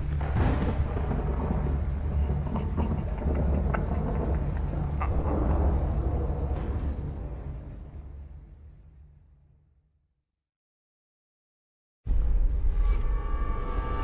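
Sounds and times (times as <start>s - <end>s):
faint crackles and clicks: 0.0s - 8.2s
sudden hit: 0.0s - 9.2s
dark low rumbling drone: 0.0s - 9.6s.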